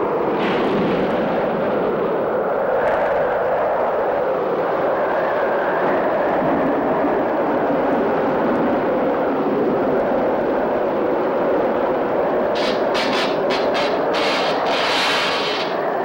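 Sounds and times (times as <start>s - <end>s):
roaring wind: 0.0s - 16.0s
driving rain: 11.5s - 16.0s
sharp bursts of hiss: 12.6s - 15.8s.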